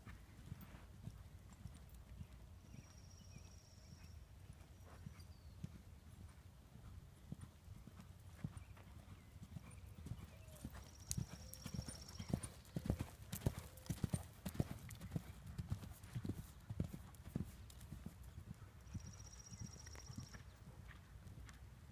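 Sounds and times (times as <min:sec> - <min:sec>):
horse hoofbeats on sand: 0:04.9 - 0:21.6.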